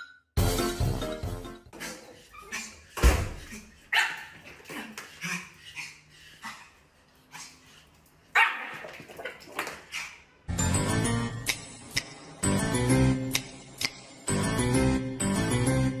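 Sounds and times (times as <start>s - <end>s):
dog barking: 3.9s - 4.3s, 8.4s - 8.8s.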